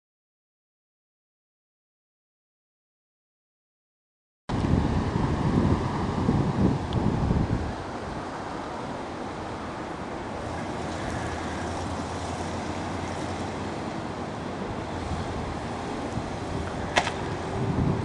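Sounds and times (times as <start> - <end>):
wind on microphone: 4.5 - 18.0.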